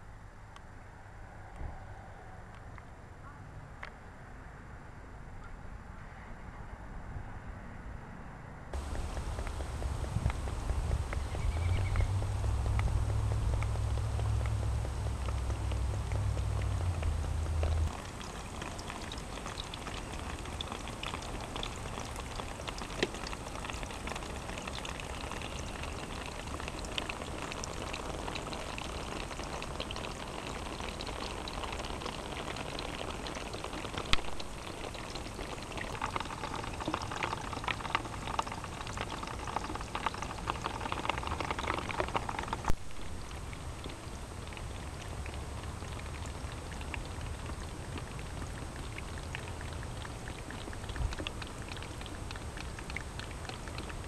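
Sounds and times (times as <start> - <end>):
low rumble: 8.8 - 30.2
water trickling over rocks: 8.8 - 54.0.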